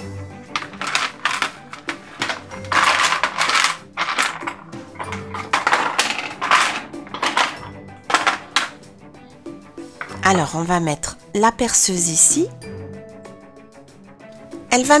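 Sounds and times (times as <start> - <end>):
plastic toy pieces rattling: 0.5 - 8.8, 10.0 - 10.2.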